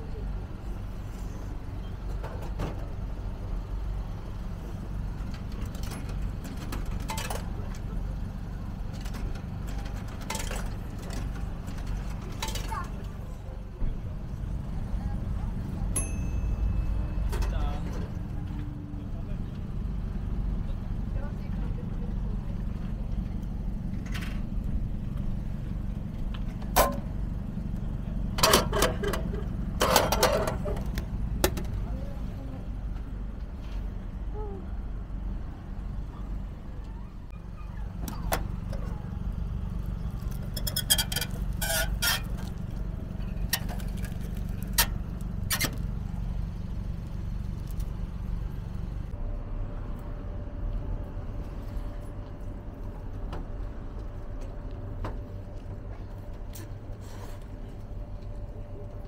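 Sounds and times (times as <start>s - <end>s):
steady low hum: 0.0s - 59.0s
steady low rumble: 2.8s - 59.0s
vending machine hatch clatter: 28.3s - 31.8s.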